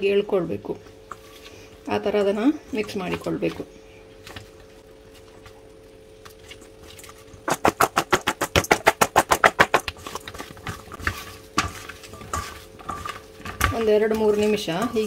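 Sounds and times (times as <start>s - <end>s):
faint steady hum: 0.0s - 15.0s
food knocking in metal bowl: 7.5s - 15.0s.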